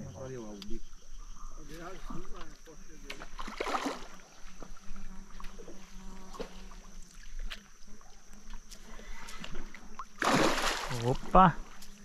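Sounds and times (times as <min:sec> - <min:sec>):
fish splashing at water surface: 0:03.2 - 0:04.2, 0:09.3 - 0:11.4.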